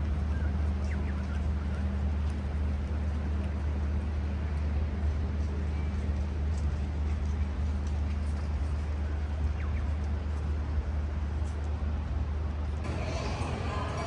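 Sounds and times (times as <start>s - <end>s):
street traffic rumble: 0.0s - 14.0s
music: 12.9s - 14.0s.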